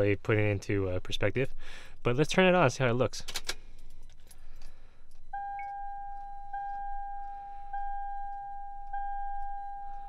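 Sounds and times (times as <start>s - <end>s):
car warning chime: 5.4s - 10.0s.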